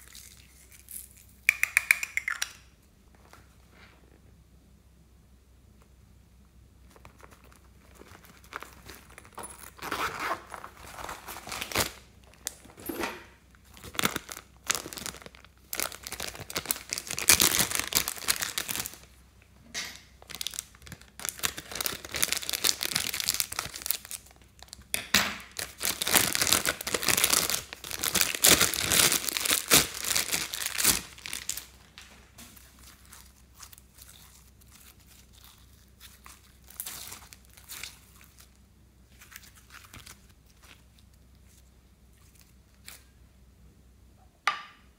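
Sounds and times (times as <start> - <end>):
plastic bag crinkling: 6.9 - 12.9, 13.5 - 19.2, 20.1 - 24.9, 25.5 - 43.0.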